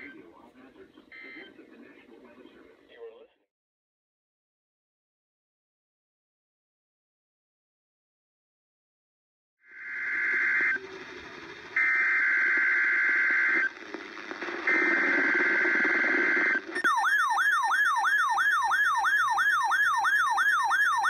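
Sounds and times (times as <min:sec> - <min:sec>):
harsh buzzing data bursts: 0:09.8 - 0:17.3
siren-like attention tone: 0:11.7 - 0:13.7, 0:14.7 - 0:21.0.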